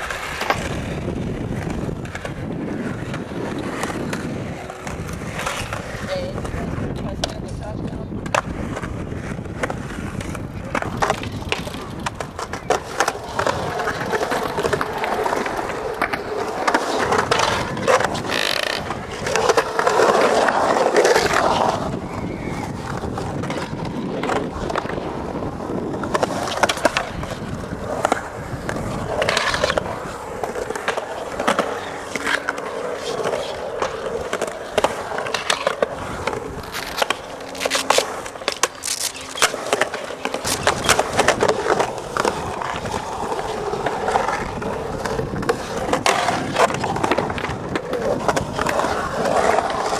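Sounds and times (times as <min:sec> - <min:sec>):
skateboard clacks: 0:00.0 - 0:49.9
skateboard wheels rolling on concrete: 0:00.0 - 0:49.9.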